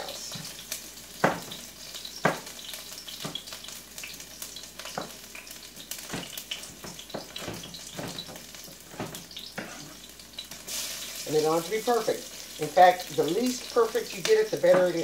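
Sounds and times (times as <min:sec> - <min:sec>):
shallots sizzling in oil: 0:00.0 - 0:15.0
knife chopping on cutting board: 0:01.2 - 0:01.6, 0:02.2 - 0:02.5.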